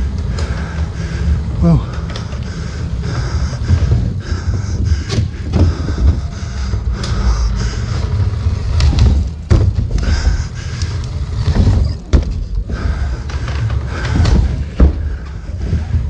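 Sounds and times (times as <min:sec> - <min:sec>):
dirt bike rumbling: 0:00.0 - 0:16.0
bike knocking on landings: 0:03.0 - 0:10.6, 0:11.2 - 0:16.0.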